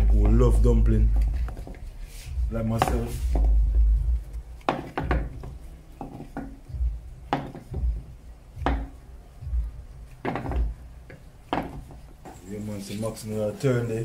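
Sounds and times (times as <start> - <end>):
dough thumping in metal bowl: 4.6 - 9.0, 10.2 - 12.4.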